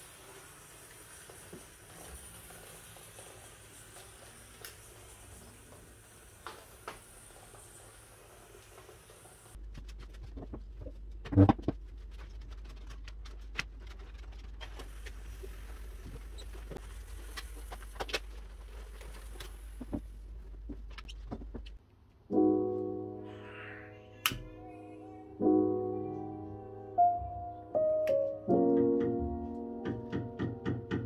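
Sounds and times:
steam cleaner humming: 0.0 - 9.6.

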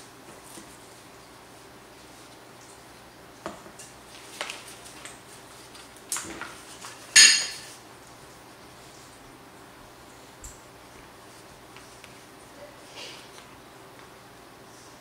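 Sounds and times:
utensils and dishes clattering: 6.2 - 7.8.

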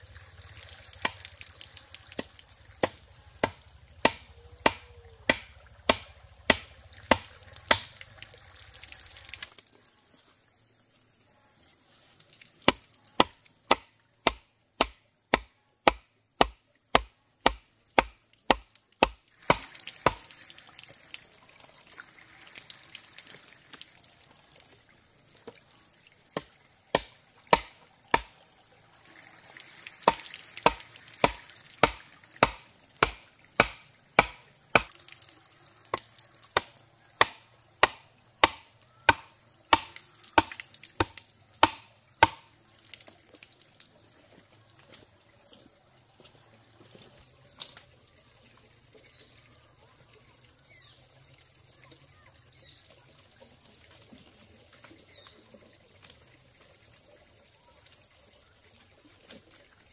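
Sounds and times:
rhythmic chopping blows: 2.2 - 7.9, 36.6 - 42.4.

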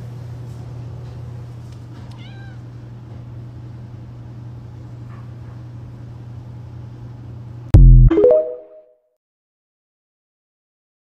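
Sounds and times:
cat meowing: 2.1 - 2.7.

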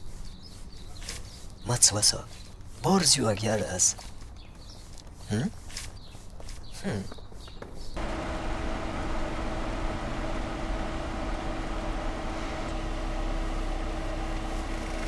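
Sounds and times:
car driving on road: 8.0 - 15.0.

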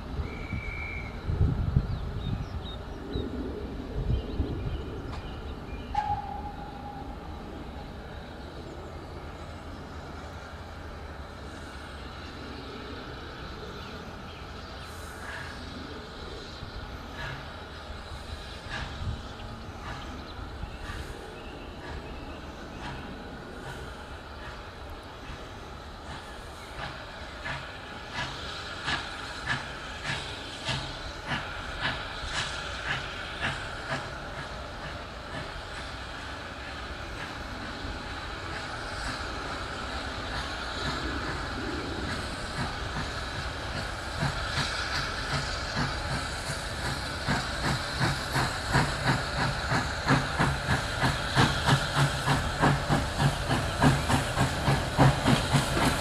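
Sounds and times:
steam train rumbling: 0.0 - 56.0.

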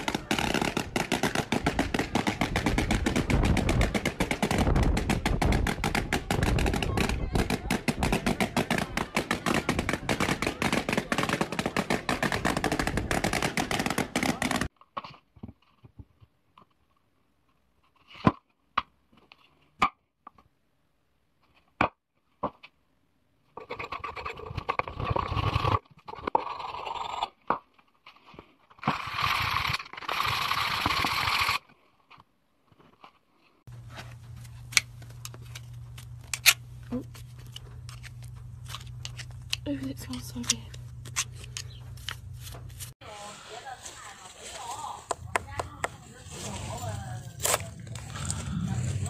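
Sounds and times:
steady low hum: 33.7 - 43.5.

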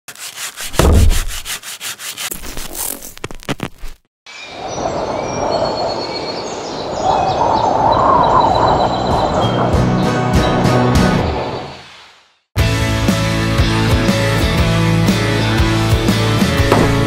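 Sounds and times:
rubbing strokes on wood: 0.1 - 2.9
low thump: 0.8 - 1.3, 16.7 - 17.0
birds chirping: 4.3 - 10.6
steady outdoor rush: 4.4 - 11.9.

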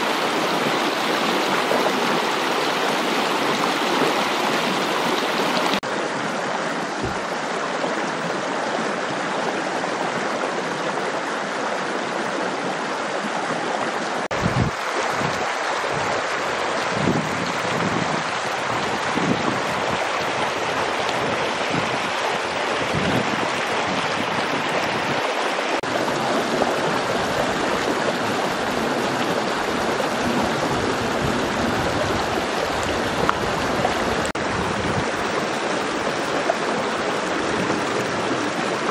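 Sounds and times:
running water rushing: 0.0 - 38.9
short low thumps: 7.0 - 7.3.

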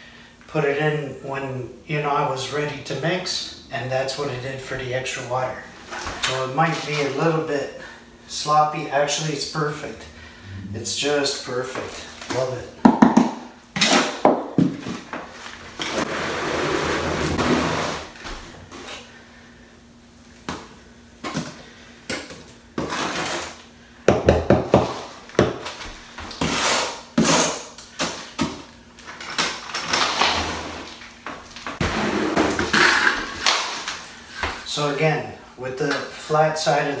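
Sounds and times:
trowel scraping mortar: 22.8 - 23.6, 26.3 - 27.6.

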